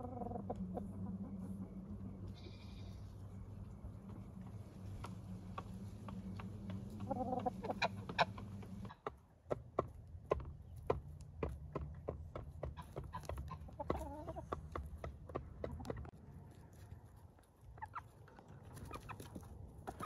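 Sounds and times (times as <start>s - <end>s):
steady low hum: 0.0s - 8.9s
chickens clucking: 0.0s - 20.0s.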